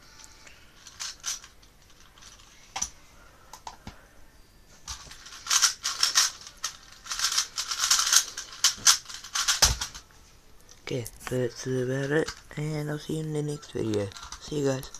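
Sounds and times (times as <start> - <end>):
puzzle cube clicking and clacking: 0.8 - 2.9, 4.9 - 10.0, 11.2 - 13.0, 13.6 - 14.9.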